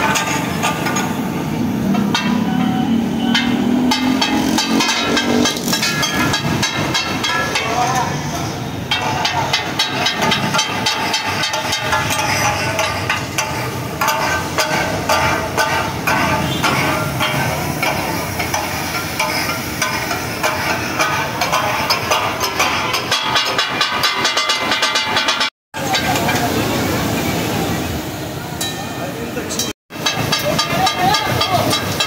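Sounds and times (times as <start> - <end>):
spatulas clacking on griddle: 0.0 - 1.2, 1.8 - 8.2, 8.8 - 26.6, 29.9 - 32.0
food sizzling: 8.9 - 23.2, 29.2 - 32.0.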